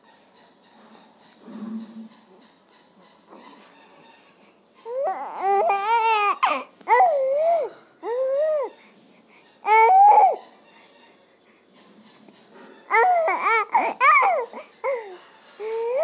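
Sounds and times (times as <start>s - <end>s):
baby cooing and squealing: 4.9s - 8.7s, 9.6s - 10.4s, 12.9s - 16.0s.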